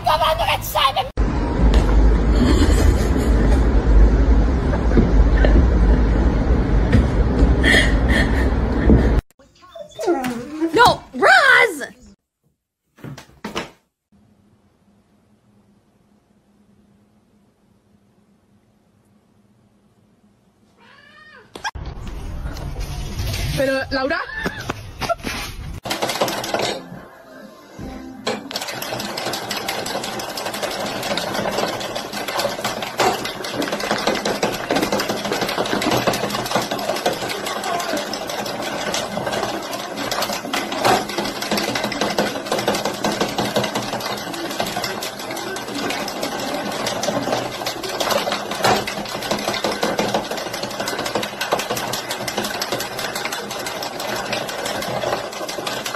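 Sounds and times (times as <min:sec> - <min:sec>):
knitting machine needles clattering: 0:25.8 - 0:26.9, 0:28.2 - 0:55.9.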